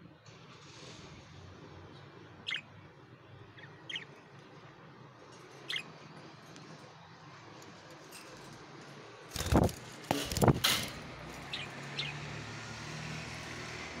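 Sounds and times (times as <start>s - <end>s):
rumbling thumps and rustles: 9.3s - 11.2s.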